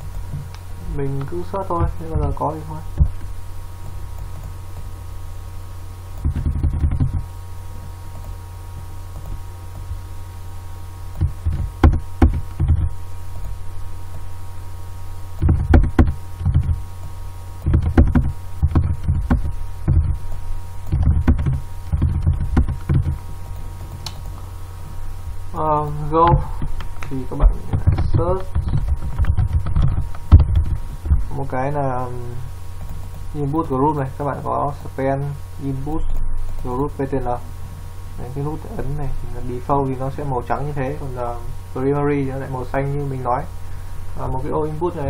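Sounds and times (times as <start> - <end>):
electrical mains hum: 0.0 - 45.0
keyboard typing and clicks: 6.2 - 7.3, 20.8 - 23.2.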